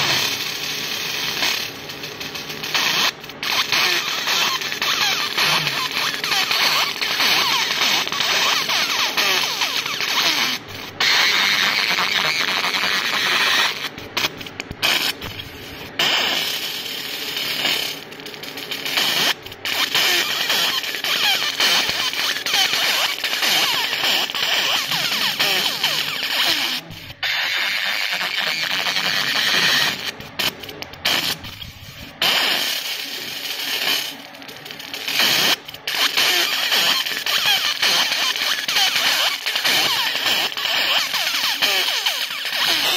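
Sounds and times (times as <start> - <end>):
laser engraving hissing crackle: 0.0 - 42.9.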